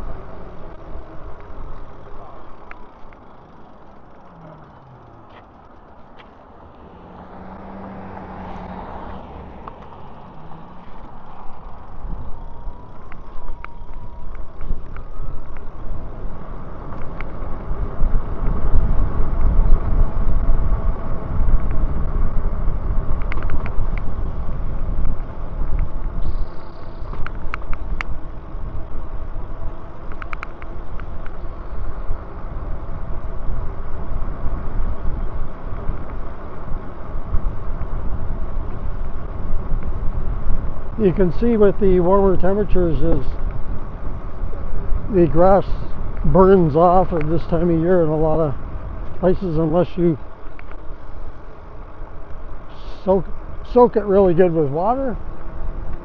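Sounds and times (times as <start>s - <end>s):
thin whine rising in pitch: 0.0s - 16.4s, 26.2s - 28.0s
wind buffeting microphone: 0.0s - 56.0s
sharp clicks: 30.0s - 31.4s.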